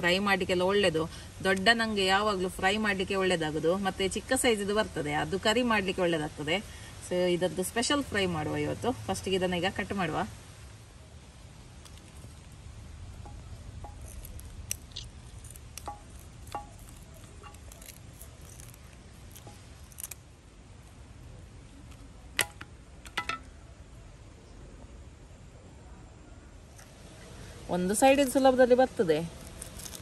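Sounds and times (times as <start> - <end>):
scissors snipping fish: 13.9 - 20.2.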